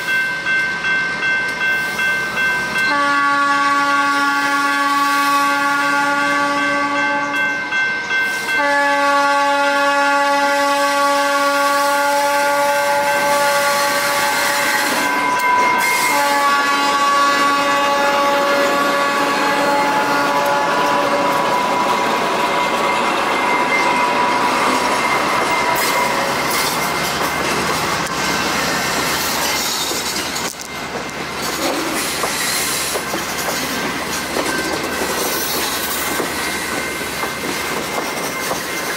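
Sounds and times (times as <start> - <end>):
train rolling past: 0.0 - 38.9
locomotive air horn blasts: 2.9 - 7.4, 8.5 - 21.5
wheels clicking over rail joints: 24.7 - 38.9.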